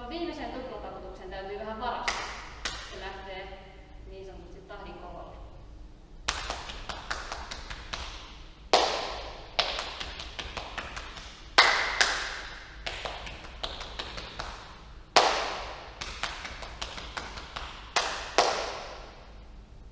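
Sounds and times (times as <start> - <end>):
hand claps: 2.1 - 3.0, 6.3 - 19.2
hand slaps on thighs: 2.1 - 3.0, 6.3 - 8.2, 8.8 - 19.0.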